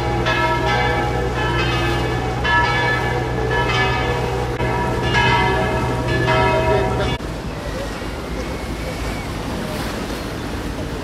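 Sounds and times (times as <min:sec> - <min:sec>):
church bells ringing: 0:00.0 - 0:07.3
boat engine drone: 0:00.0 - 0:11.0.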